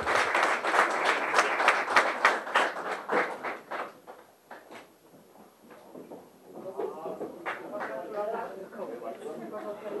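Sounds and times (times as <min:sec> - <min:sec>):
small group applauding: 0:00.0 - 0:04.9, 0:06.8 - 0:08.5.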